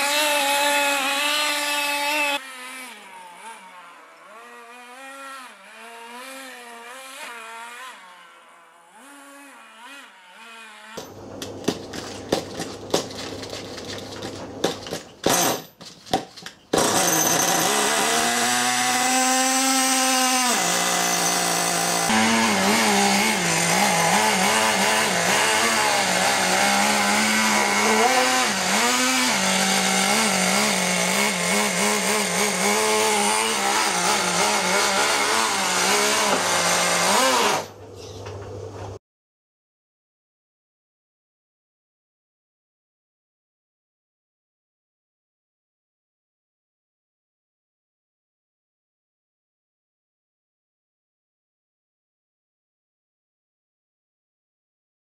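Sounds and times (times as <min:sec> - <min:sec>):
small nitro engine running: 0:00.0 - 0:11.0, 0:16.9 - 0:37.7.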